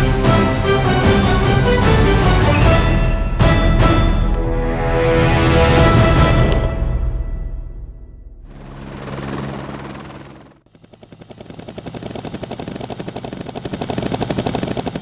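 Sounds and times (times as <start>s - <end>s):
trailer music: 0.0s - 8.6s.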